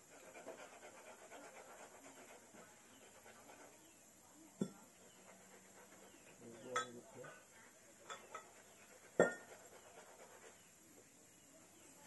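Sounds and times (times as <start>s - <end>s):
rhythmic rasping on metal tube: 8.0s - 10.5s.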